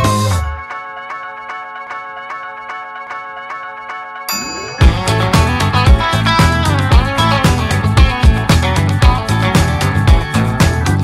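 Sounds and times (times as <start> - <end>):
guitar music with steady beat: 0.0 - 0.7, 4.8 - 11.0.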